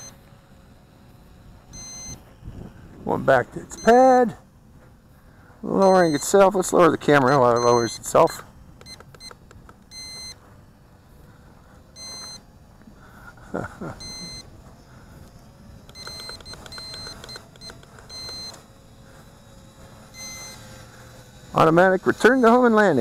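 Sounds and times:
remote controller beeps: 1.7 - 2.2, 3.7 - 4.1, 5.8 - 6.4, 7.1 - 10.4, 11.9 - 12.5, 14.0 - 14.5, 15.9 - 18.6, 20.1 - 20.8.

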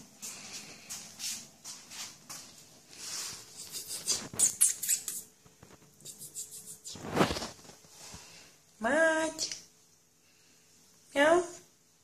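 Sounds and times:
kittens scrabbling and rustling: 0.3 - 8.4.

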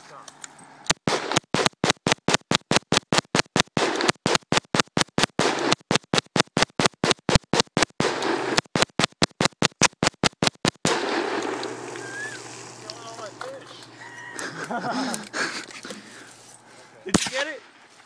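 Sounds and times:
rifle firing rapid shots: 0.9 - 13.5, 17.1 - 17.5.

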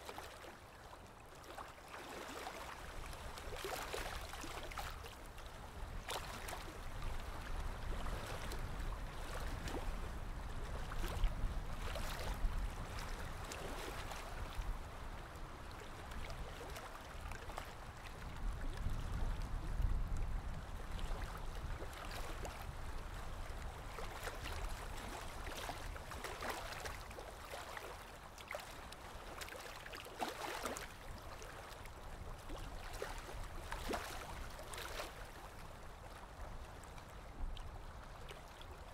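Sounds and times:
waves lapping at shore: 0.0 - 38.9.

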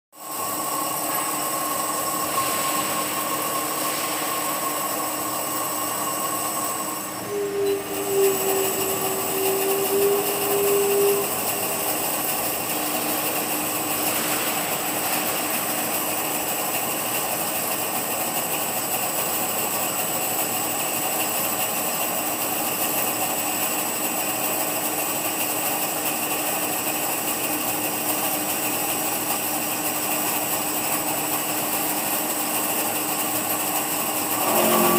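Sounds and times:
machine hum and whine: 0.2 - 34.9
loud machine tone: 0.3 - 18.1, 33.8 - 34.9.

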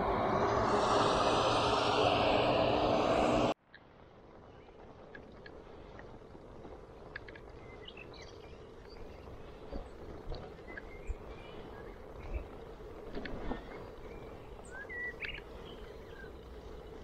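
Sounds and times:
faint road noise: 0.0 - 17.0
small birds chirping: 4.3 - 17.0.

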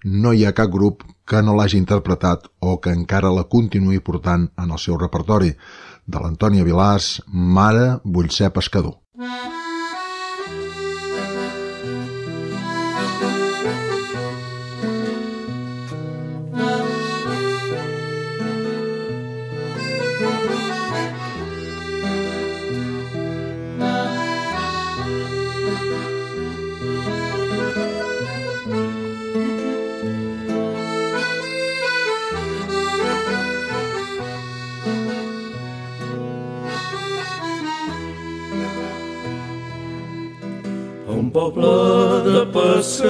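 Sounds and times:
accordion melody: 9.2 - 43.0
bass notes: 9.2 - 43.0.

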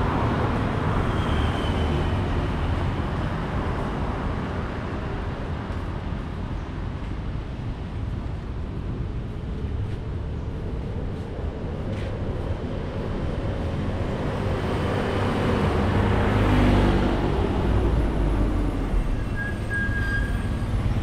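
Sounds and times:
cars and motorbikes passing: 0.0 - 21.0.

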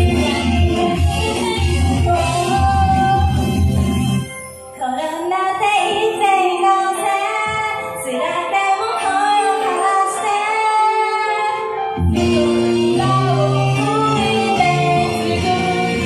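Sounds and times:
backing track with heavy bass: 0.0 - 4.5, 12.0 - 16.0
woman singing pop song: 0.0 - 16.0.

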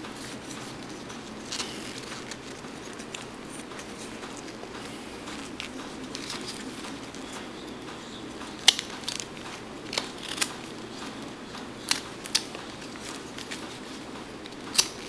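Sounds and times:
knife cutting wood: 8.5 - 10.7.

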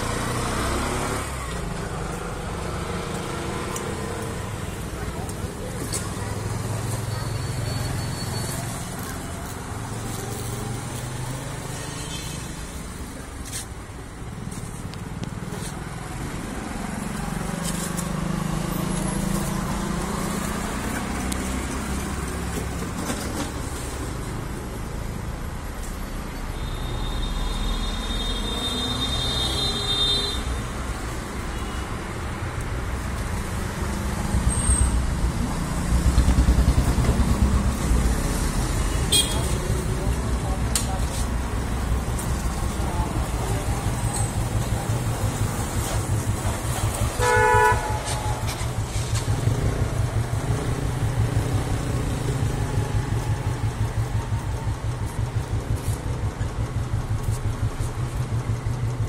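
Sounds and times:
road traffic: 0.0 - 59.0
car horn tooting: 26.6 - 30.6, 39.0 - 39.6, 47.2 - 48.4.

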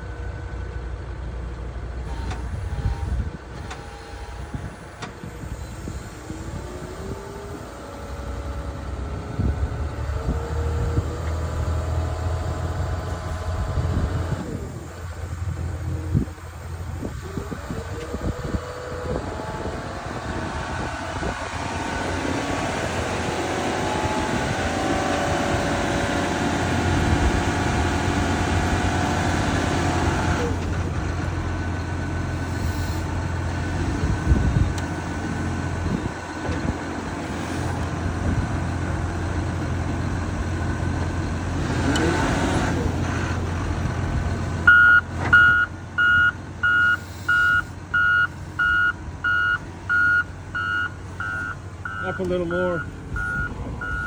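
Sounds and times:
diesel engine under load: 0.0 - 54.0
reversing alarm beeping: 44.6 - 54.0.

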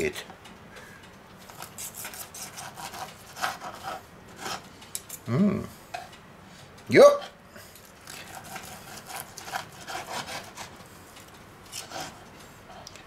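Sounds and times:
knife sawing through steak: 1.6 - 4.6, 8.0 - 10.7, 11.7 - 12.2.

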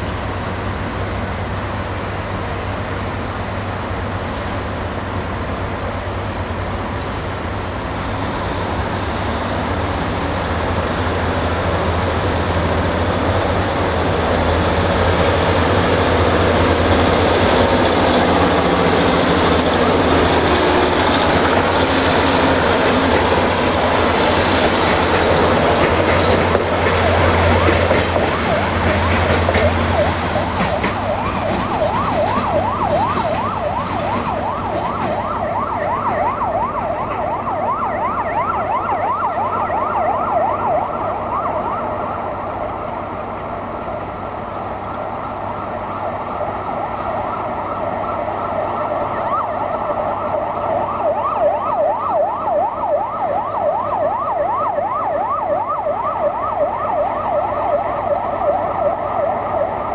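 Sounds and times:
train engine drone: 0.0 - 59.9
train rolling noise: 0.0 - 59.9
siren-like yelp: 25.0 - 43.1, 45.1 - 59.9.

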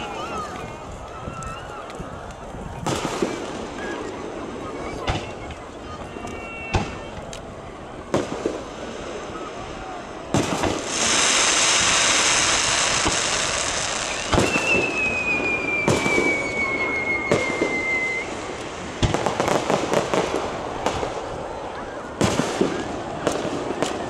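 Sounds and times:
firework shells bursting: 10.3 - 21.0
crackling hiss of sparks: 10.4 - 20.6
firework whistle falling: 10.8 - 18.4.

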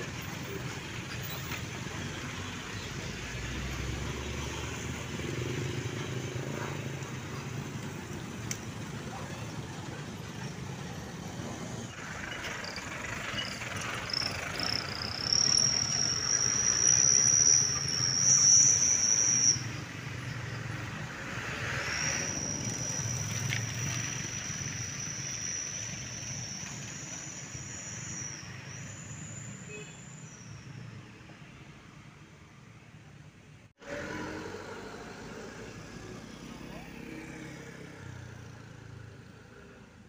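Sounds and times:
bus engine: 0.0 - 40.0
passing road traffic: 0.0 - 40.0
high steady whistling tone: 11.2 - 31.6.

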